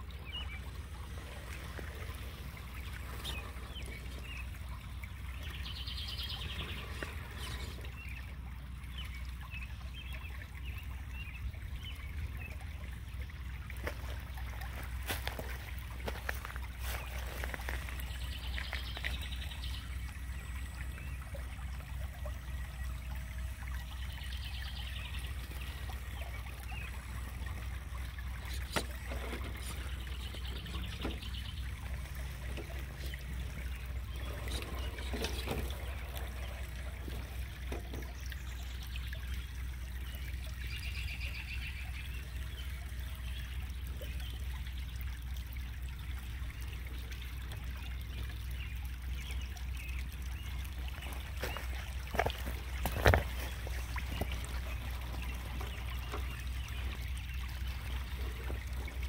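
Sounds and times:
steady low rumble: 0.0 - 40.8
water trickling: 0.0 - 59.0.

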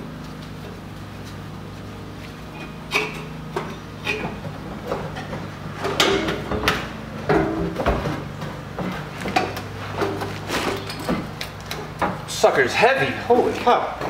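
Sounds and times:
metal clunks and scrapes: 2.5 - 12.3.

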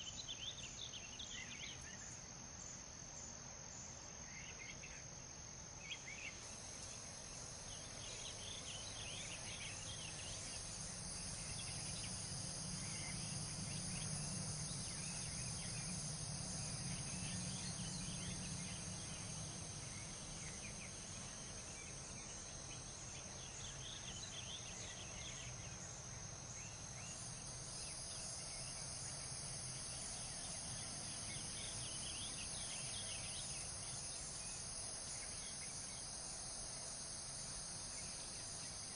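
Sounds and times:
crickets chirping: 0.0 - 38.9
low background rumble: 10.0 - 22.2.

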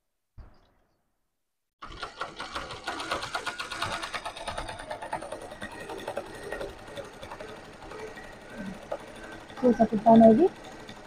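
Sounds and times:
sewing machine knock: 1.8 - 9.6
sewing machine stitching: 1.8 - 11.0.

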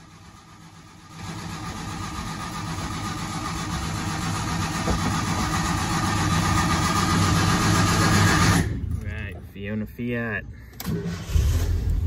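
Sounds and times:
car engine starting: 10.7 - 12.0.

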